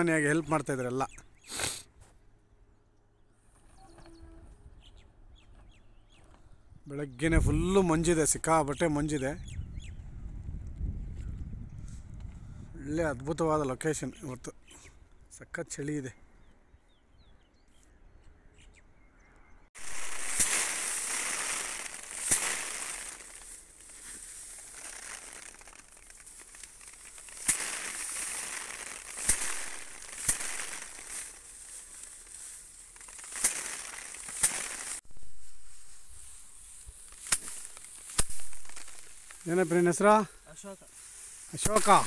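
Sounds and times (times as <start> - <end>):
rice sheaves beaten against stone: 19.8 - 39.8, 41.2 - 42.0
rustle of straw: 19.8 - 42.0.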